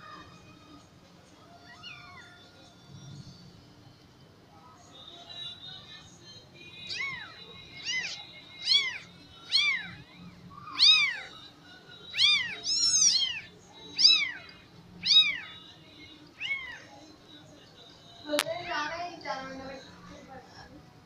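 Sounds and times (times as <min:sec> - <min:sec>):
kittens mewing: 0:01.6 - 0:02.4, 0:06.8 - 0:11.5, 0:12.1 - 0:15.6, 0:16.4 - 0:17.0.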